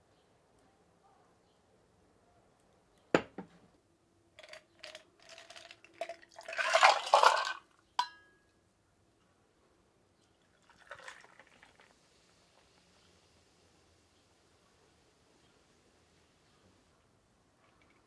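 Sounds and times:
carbonated drink poured from bottle: 4.4s - 7.6s, 10.5s - 12.9s
liquid splashing into a glass mug: 4.4s - 8.2s, 10.5s - 12.0s
metal clinking on glass: 8.0s - 8.5s.

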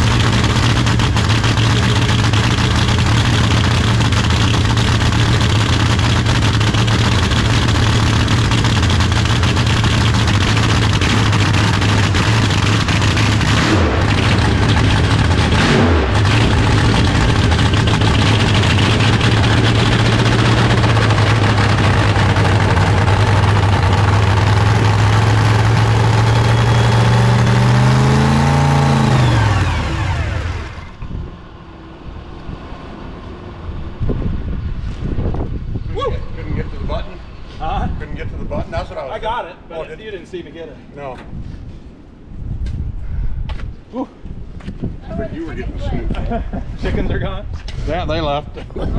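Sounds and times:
car engine idling loudly: 0.0s - 31.0s.

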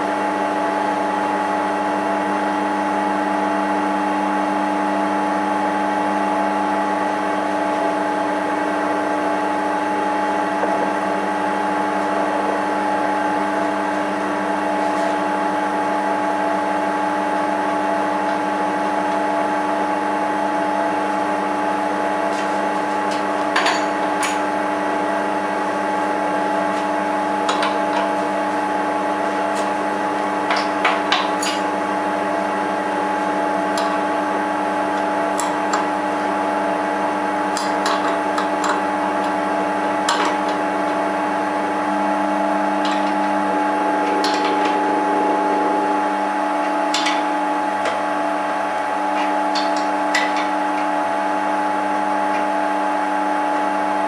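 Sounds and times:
lathe motor humming: 6.5s - 21.4s, 31.8s - 53.8s.

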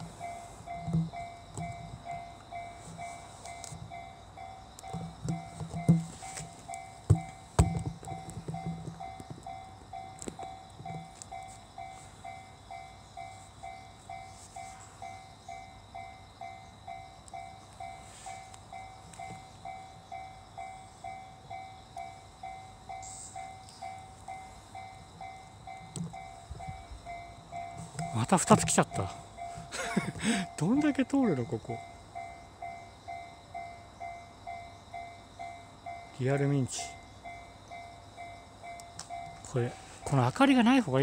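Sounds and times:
sharp knocks: 7.1s - 9.0s
level crossing bell ringing: 18.8s - 34.2s.

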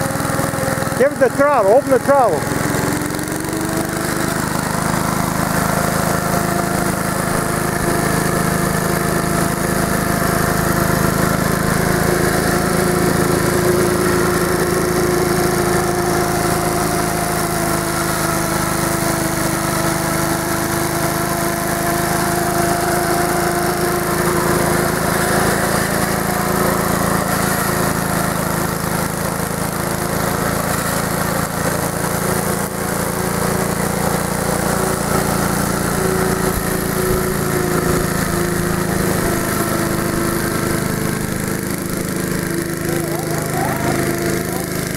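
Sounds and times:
riding lawnmower engine running: 0.0s - 44.9s.

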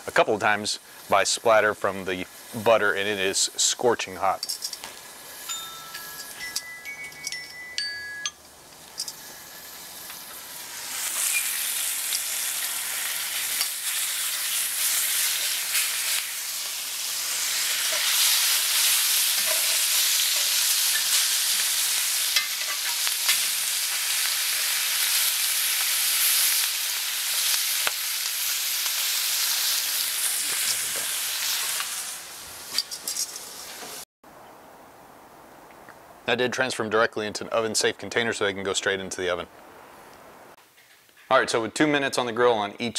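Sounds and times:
meat searing in a skillet: 0.0s - 6.5s, 8.4s - 34.0s.

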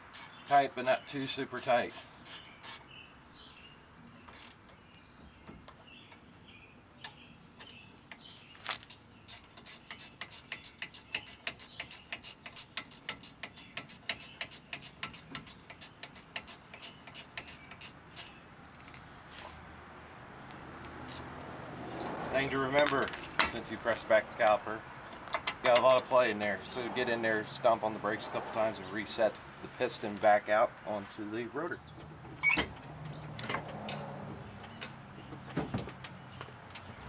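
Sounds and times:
ratcheting wrench clicking: 0.1s - 2.9s, 4.3s - 4.6s, 8.9s - 18.3s.

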